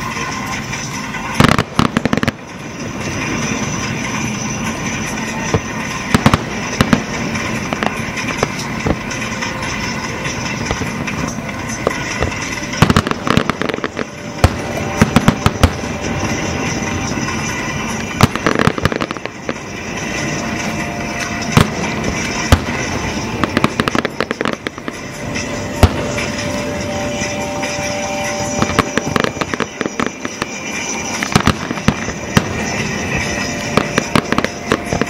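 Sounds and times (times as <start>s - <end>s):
fireworks bangs and crackles: 0.0s - 35.0s.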